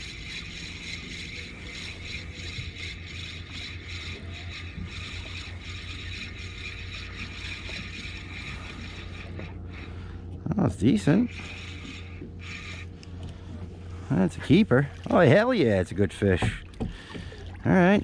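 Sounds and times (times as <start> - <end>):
fishing reel gears whirring: 0.0 - 14.7
steady low hum: 0.0 - 18.0.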